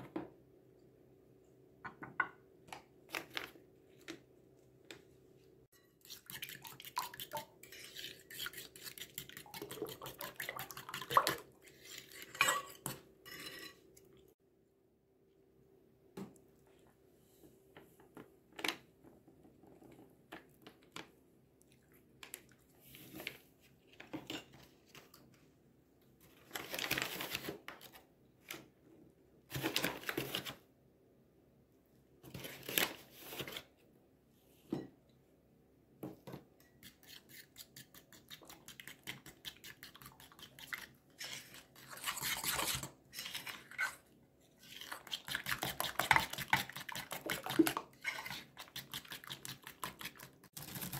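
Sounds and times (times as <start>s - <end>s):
spoon beating batter in glass bowl: 5.8s - 13.8s, 44.8s - 50.6s.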